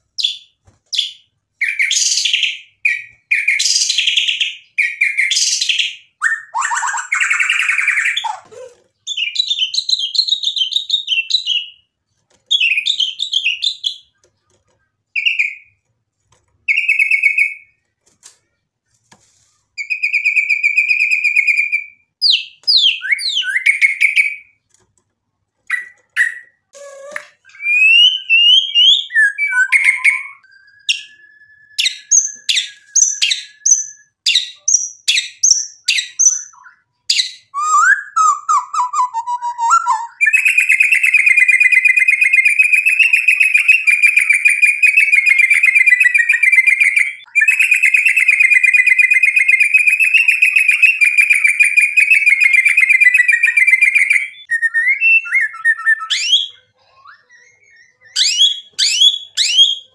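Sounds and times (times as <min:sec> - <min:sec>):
bird singing whistled notes: 0:26.3 - 0:59.9.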